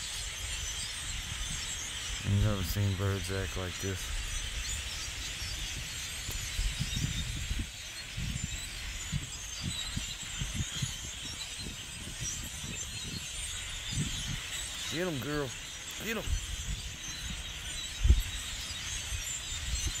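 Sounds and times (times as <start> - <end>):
flock of birds chattering: 0.0 - 20.0.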